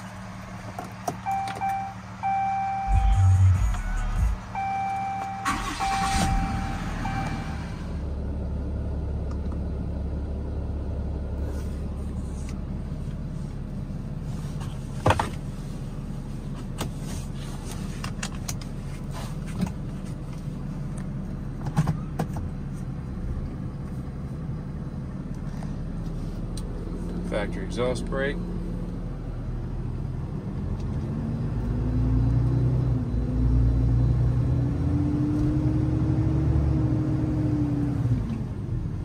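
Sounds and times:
diesel engine idling: 0:00.0 - 0:16.5.

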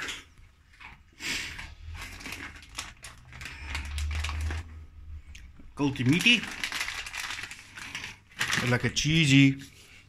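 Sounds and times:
plastic packet crinkling: 0:01.8 - 0:05.0, 0:05.8 - 0:09.6
low rumble: 0:01.9 - 0:05.8.

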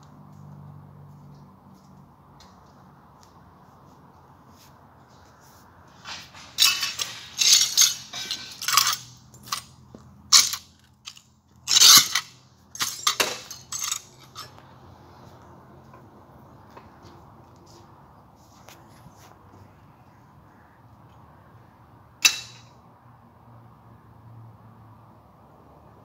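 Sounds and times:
broken glass clinking and crunching: 0:06.0 - 0:09.7, 0:10.3 - 0:14.5.

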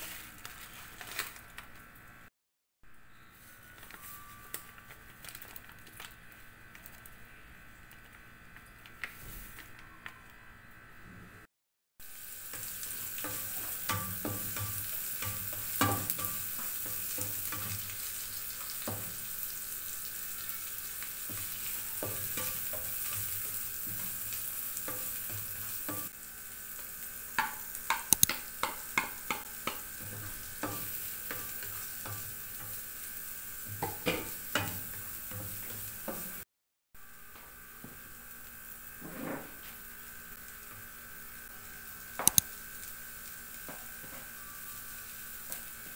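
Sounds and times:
onions sizzling in oil: 0:12.0 - 0:36.4, 0:37.0 - 0:45.9
spatula scraping and tapping pan: 0:12.5 - 0:19.2, 0:27.4 - 0:32.8.

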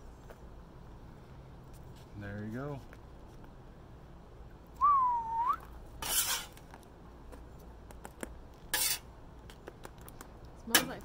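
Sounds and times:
metal spatula scraping griddle: 0:06.0 - 0:06.6, 0:08.7 - 0:09.1.

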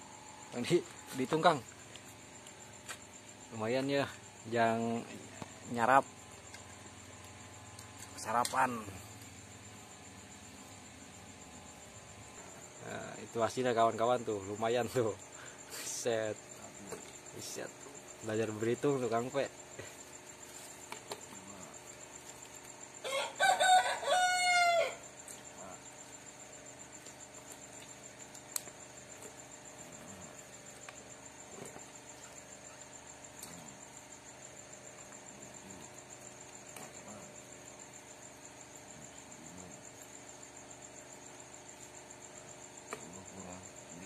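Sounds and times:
high insect trill: 0:00.0 - 0:44.0
rooster crowing: 0:23.0 - 0:25.1.

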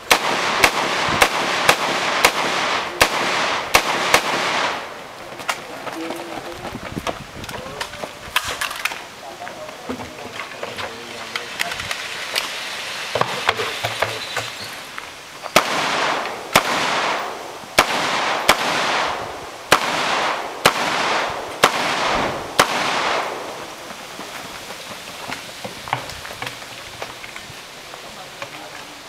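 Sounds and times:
rifle shots with echo: 0:00.0 - 0:05.1, 0:15.6 - 0:23.8.

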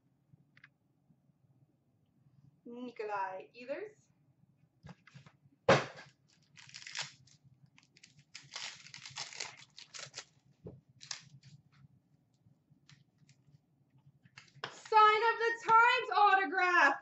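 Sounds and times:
card pack wrapper crinkling and tearing: 0:06.3 - 0:10.4, 0:11.0 - 0:11.5.

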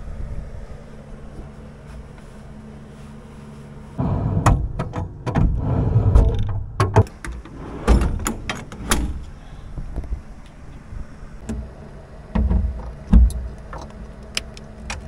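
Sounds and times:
steady low hum: 0:00.0 - 0:15.0
knocks and clunks of handling: 0:04.4 - 0:09.1, 0:12.3 - 0:15.0.

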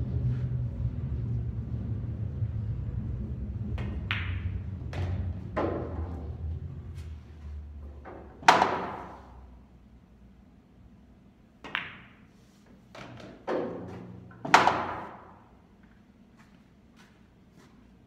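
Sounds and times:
cue tip striking ball: 0:03.8 - 0:06.2, 0:08.4 - 0:09.2, 0:11.6 - 0:12.2, 0:14.5 - 0:15.3
ball dropping into pocket: 0:11.6 - 0:12.2.

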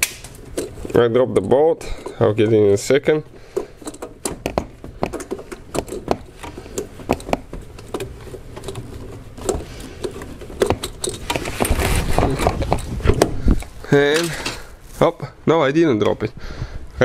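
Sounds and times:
clicks and taps of car parts: 0:00.0 - 0:02.2, 0:03.4 - 0:11.5.

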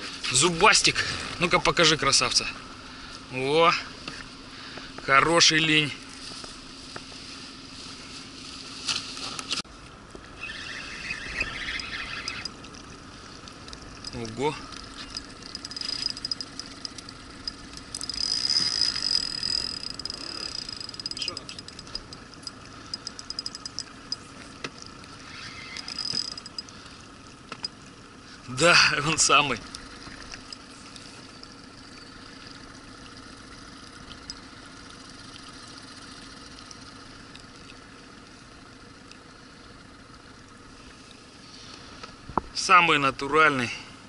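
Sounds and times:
faint steady hum: 0:00.0 - 0:44.0
river water rippling: 0:00.0 - 0:44.0
wind: 0:00.0 - 0:44.0
fishing reel ticking: 0:10.4 - 0:26.9, 0:29.1 - 0:37.6
sharp knocks and rattles: 0:13.8 - 0:25.0, 0:25.8 - 0:26.7.

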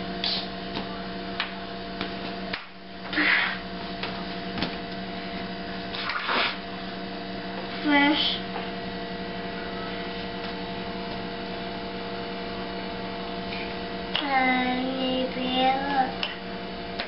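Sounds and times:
electrical hum: 0:00.0 - 0:17.0
toddler singing: 0:14.2 - 0:16.3.

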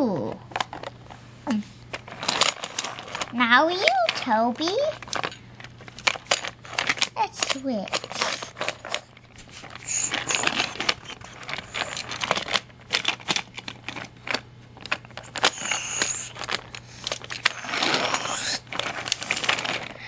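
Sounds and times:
toy trains clattering on track: 0:02.2 - 0:05.4, 0:06.0 - 0:09.1, 0:09.8 - 0:14.4, 0:15.2 - 0:20.0.

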